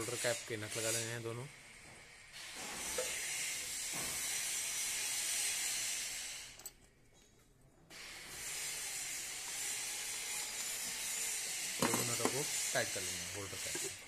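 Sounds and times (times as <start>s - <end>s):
high-pitched hiss: 0.0s - 1.6s, 7.9s - 14.0s.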